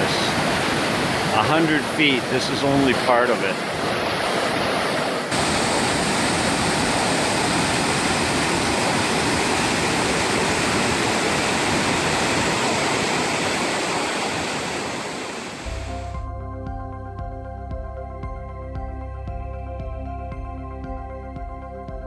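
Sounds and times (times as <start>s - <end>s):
waterfall rushing over rocks: 0.0s - 16.0s.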